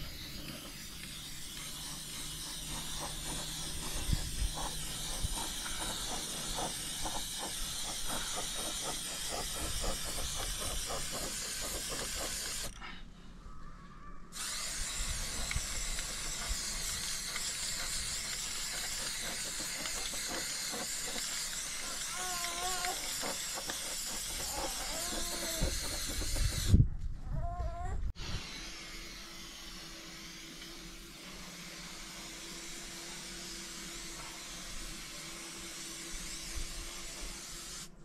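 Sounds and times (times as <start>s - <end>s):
paintbrush scrubbing on wood: 0.0s - 12.7s, 14.4s - 26.7s.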